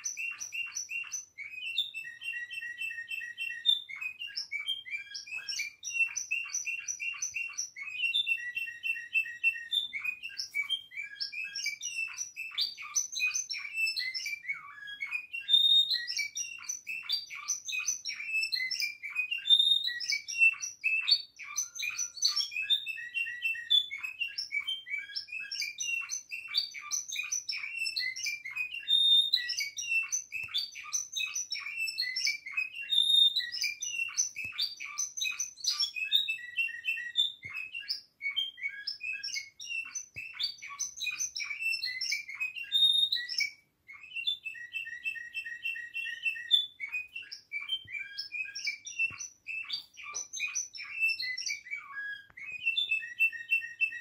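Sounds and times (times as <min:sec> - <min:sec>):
canary singing trills: 0:00.0 - 0:54.0.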